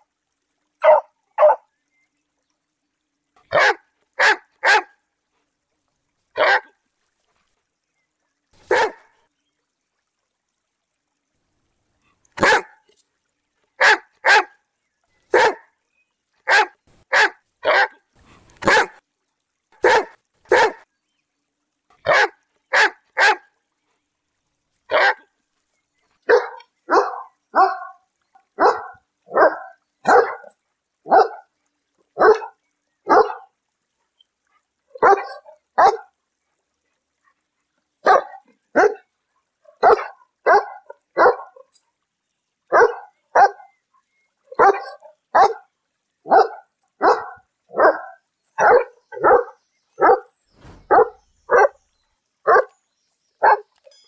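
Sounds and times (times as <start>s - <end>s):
dog barking: 0.8s - 1.6s, 3.5s - 4.9s, 6.4s - 6.7s, 8.7s - 9.0s, 12.4s - 12.8s, 13.8s - 14.5s, 15.3s - 15.7s, 16.5s - 18.0s, 18.6s - 19.0s, 19.8s - 20.8s, 22.0s - 23.4s, 24.9s - 25.2s, 26.3s - 28.0s, 28.6s - 30.5s, 31.1s - 31.5s, 32.2s - 33.5s, 35.0s - 36.1s, 38.0s - 39.0s, 39.7s - 41.6s, 42.7s - 43.6s, 44.6s - 45.6s, 46.3s - 51.8s, 52.5s - 52.7s, 53.4s - 53.6s.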